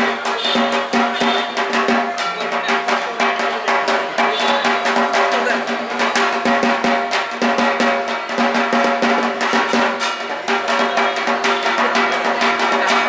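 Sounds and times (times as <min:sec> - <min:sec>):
fast dense drumming: 0:00.0 - 0:13.0.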